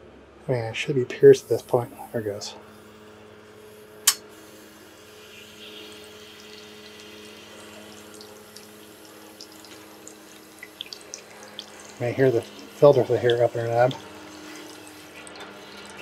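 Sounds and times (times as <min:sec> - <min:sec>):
steady low hum: 0:00.0 - 0:16.0
water hissing into filter: 0:01.2 - 0:16.0
sharp click: 0:04.0 - 0:04.3.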